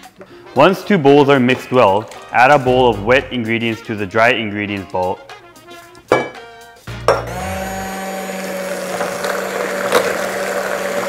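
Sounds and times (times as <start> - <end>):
electric hand mixer whirring: 7.1 - 11.0
beaters whirring through batter: 7.3 - 11.0.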